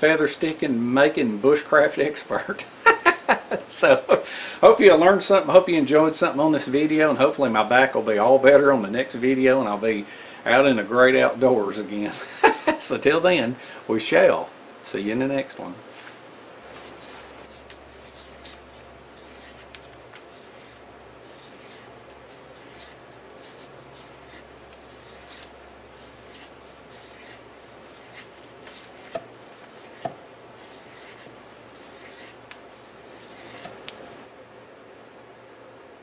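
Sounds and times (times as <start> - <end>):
blade scraping wood: 16.7 - 34.3.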